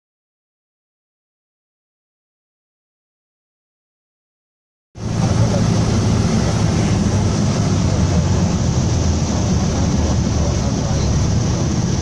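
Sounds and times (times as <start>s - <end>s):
airplane engine and propeller droning: 5.0s - 12.0s
rush of air around cabin: 5.0s - 12.0s.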